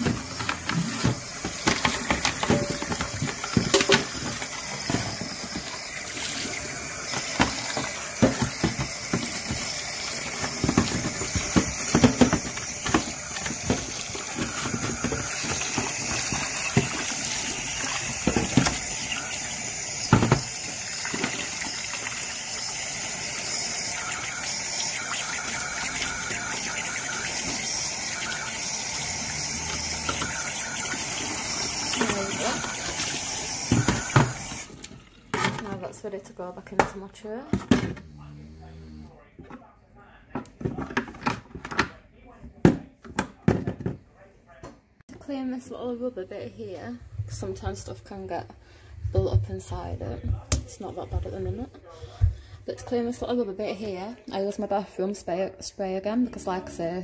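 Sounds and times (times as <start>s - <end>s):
tap water running into sink: 0.0s - 35.8s
water splashing on plastic: 23.9s - 35.1s.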